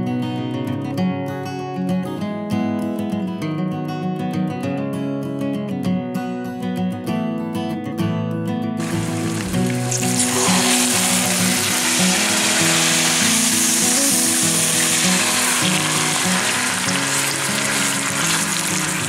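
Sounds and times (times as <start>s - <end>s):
meat sizzling in oil: 8.8s - 19.0s.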